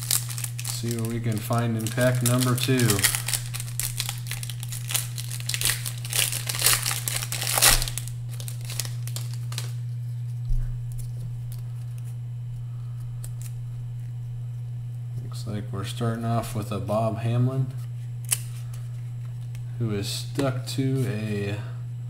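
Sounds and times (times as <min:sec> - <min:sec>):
foil wrapper crinkling and tearing: 0:00.0 - 0:10.1
steady low hum: 0:00.0 - 0:22.0.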